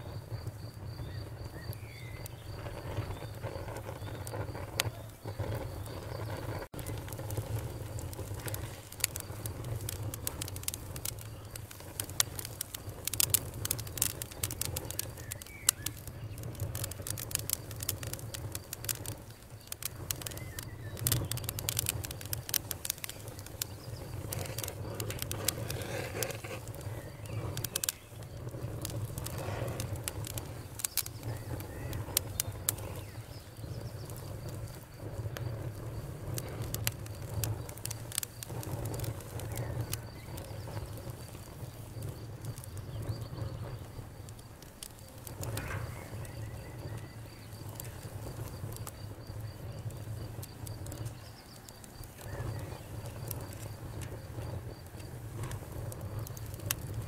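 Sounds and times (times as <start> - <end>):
fire crackling and popping: 0.0 - 57.0
low rumble of flames: 0.0 - 57.0.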